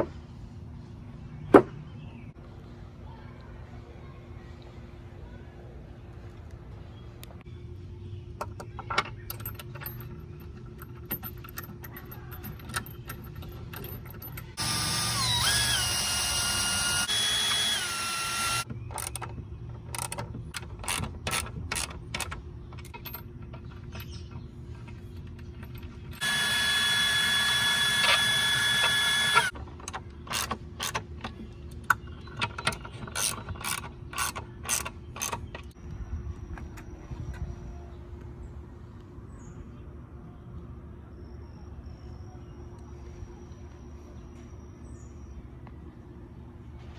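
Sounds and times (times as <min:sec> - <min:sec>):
power tool motor whine: 0:14.6 - 0:18.6, 0:26.2 - 0:29.5.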